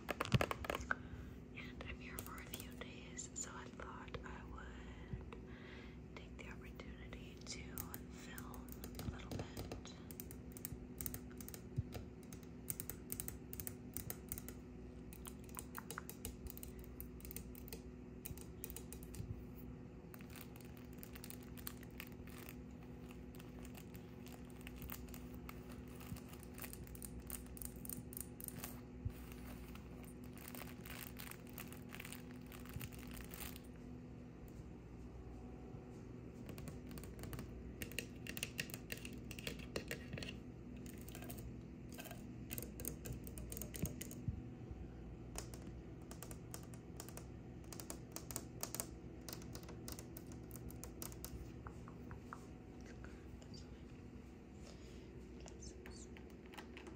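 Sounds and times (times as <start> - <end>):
cloth book crinkling: 20.2 - 33.8.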